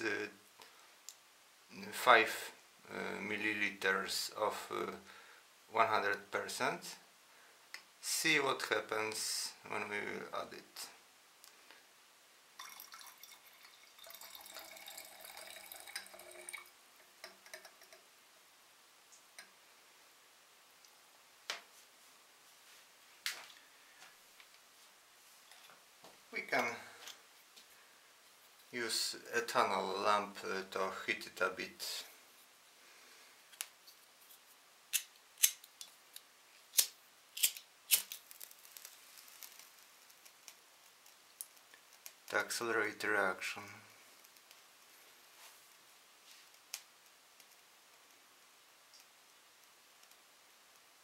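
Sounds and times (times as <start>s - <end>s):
liquid pouring into glass flask: 12.6s - 18.0s.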